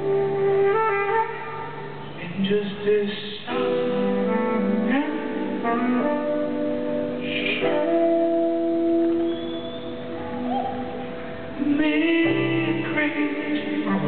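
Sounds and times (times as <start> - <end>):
tenor saxophone long notes: 0.0 - 1.9, 3.6 - 9.9.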